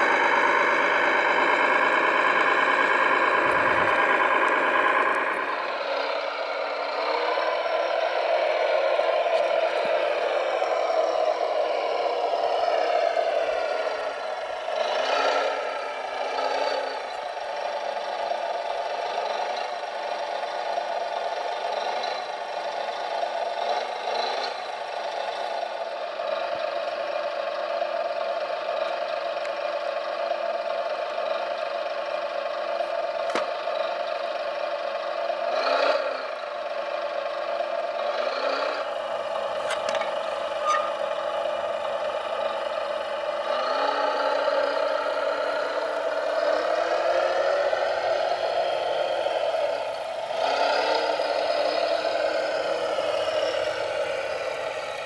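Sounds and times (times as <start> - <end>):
electric motor and pump whine: 0.0 - 17.3.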